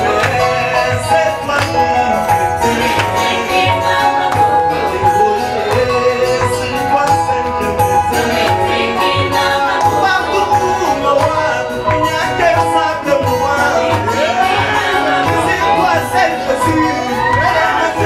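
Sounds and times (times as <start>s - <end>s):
upbeat instrumental gospel music: 0.0s - 18.0s.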